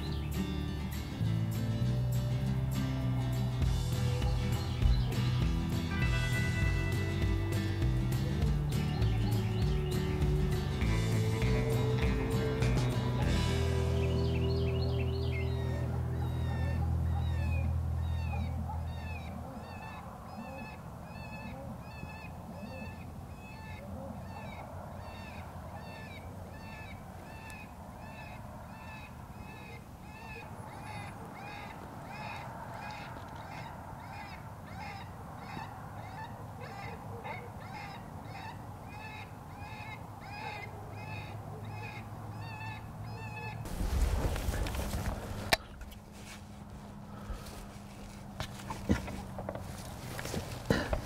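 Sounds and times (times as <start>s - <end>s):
background music: 0.0s - 18.4s.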